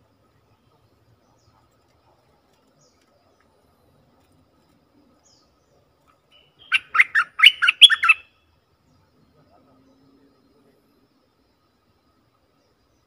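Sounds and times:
bird singing short notes: 0:06.3 - 0:08.3.

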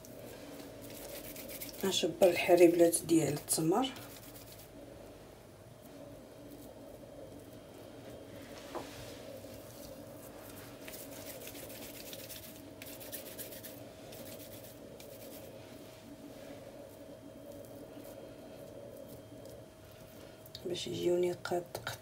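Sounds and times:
faint steady hum: 0:00.0 - 0:22.0
hands rubbing sticky paste: 0:00.1 - 0:02.0, 0:04.0 - 0:04.7, 0:08.8 - 0:15.6.

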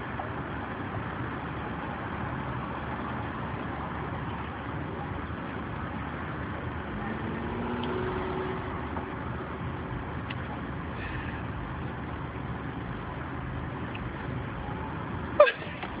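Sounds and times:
car road and engine noise: 0:00.0 - 0:16.0.

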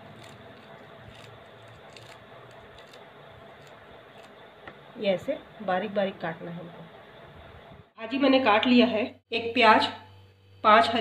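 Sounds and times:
knife cutting leafy greens: 0:00.0 - 0:04.4
low steady hum: 0:00.0 - 0:11.0.

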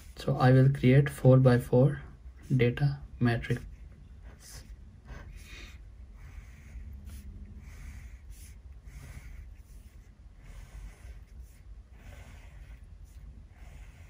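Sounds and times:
pen scratching on paper: 0:03.5 - 0:14.0.

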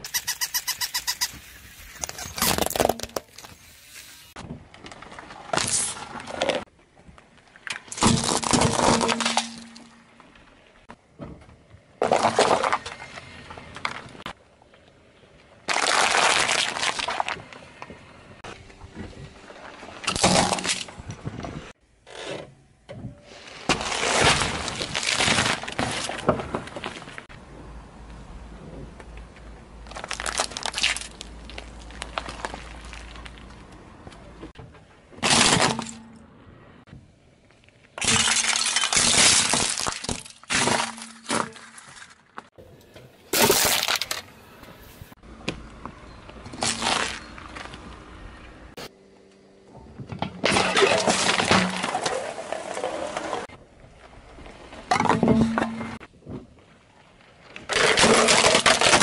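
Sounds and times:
objects crunching under car tyre: 0:00.0 - 0:22.4, 0:23.2 - 0:27.4, 0:28.7 - 0:36.8, 0:37.4 - 0:48.9, 0:49.8 - 0:59.0
tyre crushing objects: 0:02.0 - 0:03.6, 0:43.3 - 0:45.2, 0:50.2 - 0:53.4, 0:57.7 - 0:59.0.

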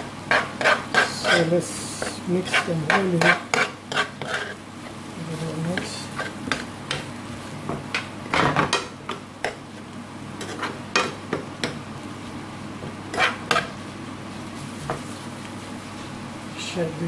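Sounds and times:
food sizzling: 0:00.0 - 0:17.0
utensil scraping frying pan: 0:00.2 - 0:07.2, 0:10.4 - 0:11.8, 0:13.0 - 0:13.8.

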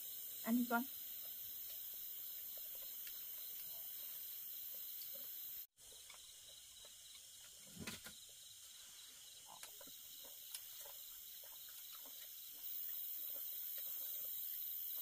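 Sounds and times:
night insects chirping: 0:00.0 - 0:15.0.

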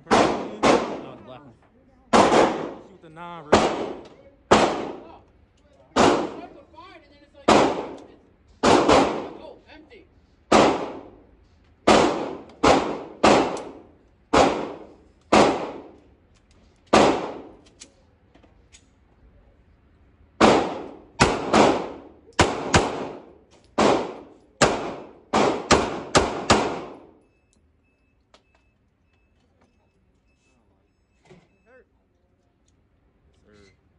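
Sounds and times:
handgun shots echoing indoors: 0:00.0 - 0:01.2, 0:02.2 - 0:02.8, 0:07.5 - 0:09.4, 0:11.8 - 0:16.0, 0:20.4 - 0:27.2.

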